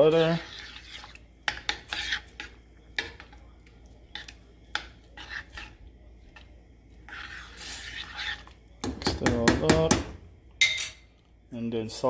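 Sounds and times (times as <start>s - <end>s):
spoon scraping pan: 0.0s - 9.9s
spoon clinking against pan: 10.6s - 11.1s.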